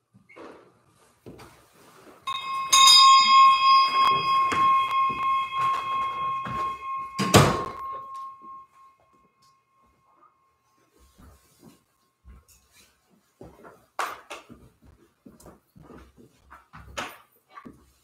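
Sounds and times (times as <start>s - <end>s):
small bell ringing: 2.3s - 10.2s.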